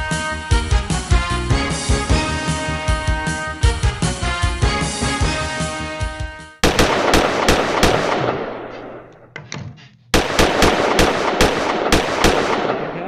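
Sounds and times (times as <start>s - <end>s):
bursts of sharp cracks: 6.6s - 9.3s, 10.1s - 13.0s.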